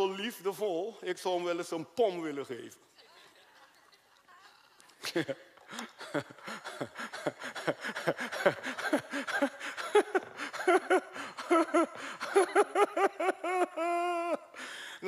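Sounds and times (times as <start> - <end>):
man laughing high-pitched: 5.9 - 14.5.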